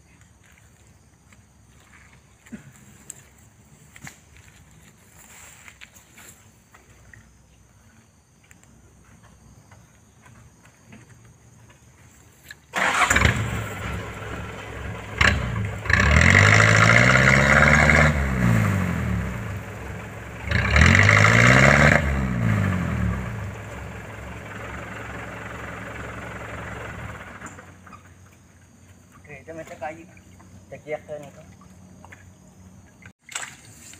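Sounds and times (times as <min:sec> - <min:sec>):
truck engine revving: 0:12.8 - 0:27.8.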